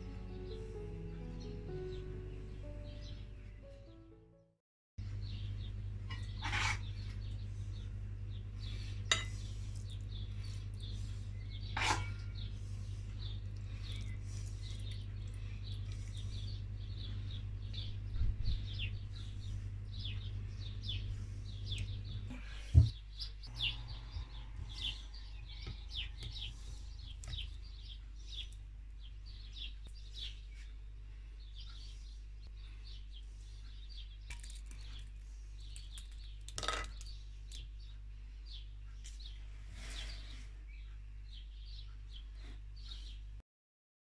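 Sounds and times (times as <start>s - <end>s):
small birds chirping: 0.1s - 4.0s, 5.0s - 43.4s
steady low hum: 5.0s - 43.4s
croutons clattering onto plate: 36.5s - 37.1s.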